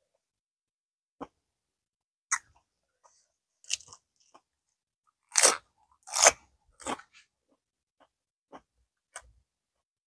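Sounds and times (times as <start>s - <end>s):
crisp cucumber crunch: 3.6s - 4.4s, 5.2s - 7.2s.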